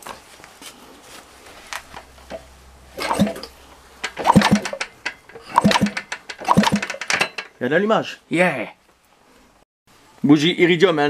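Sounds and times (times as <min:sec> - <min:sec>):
rushing sound: 0:01.6 - 0:06.9
irregular clunks: 0:01.8 - 0:07.6
motorcycle engine being kicked over: 0:01.8 - 0:07.6.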